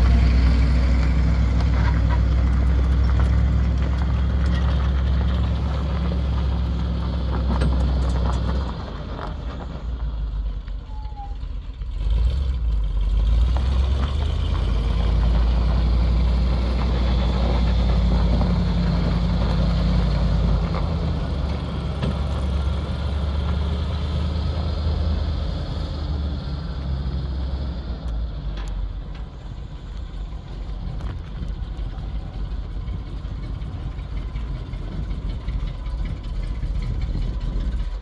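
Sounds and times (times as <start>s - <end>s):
truck engine idling: 0.0s - 38.0s.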